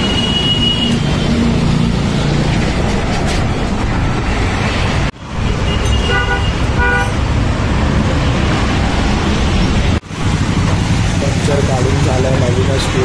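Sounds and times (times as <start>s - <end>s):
road traffic: 0.0s - 13.0s
vehicle horn tooting: 5.6s - 7.2s.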